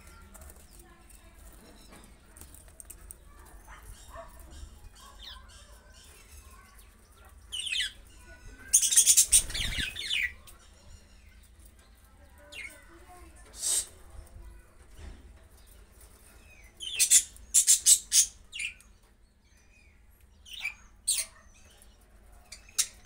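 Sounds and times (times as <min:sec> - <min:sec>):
wings flapping: 0:09.0 - 0:10.1.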